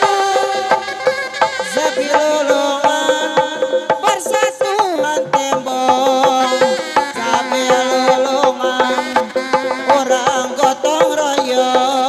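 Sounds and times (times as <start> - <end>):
drums beating: 0.0 - 12.0
wavering melody line: 0.0 - 12.0.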